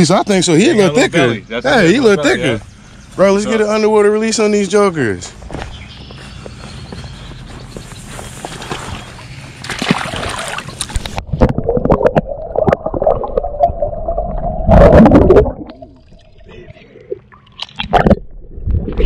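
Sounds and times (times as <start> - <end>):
water gurgling and bubbling: 9.8 - 19.0
clicking bubbles underwater: 10.8 - 16.3.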